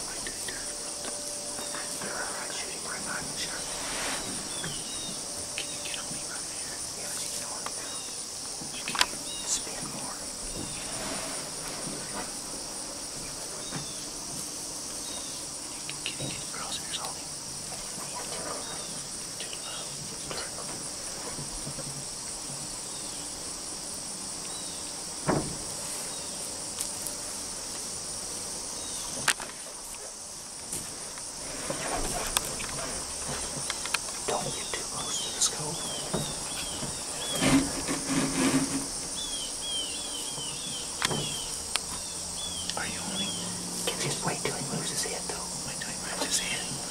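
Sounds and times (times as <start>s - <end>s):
insects chirping: 0.0s - 46.9s
sharp knock: 25.2s - 25.6s
soft clicks and rustles: 29.0s - 35.0s.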